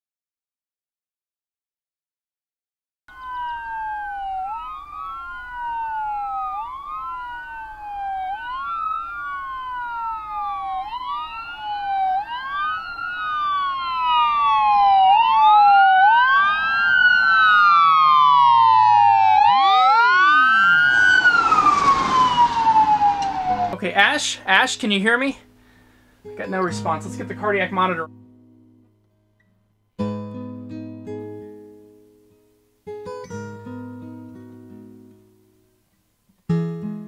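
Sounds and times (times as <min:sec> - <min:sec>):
ambulance siren wailing: 0:03.1 - 0:24.4.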